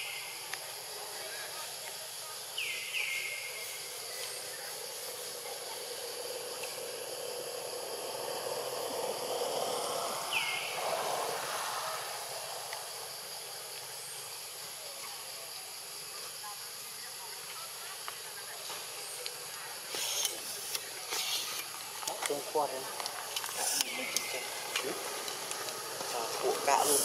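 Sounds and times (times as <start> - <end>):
steady high-pitched hiss: 0.0 - 27.0
rushing noise: 3.6 - 14.7.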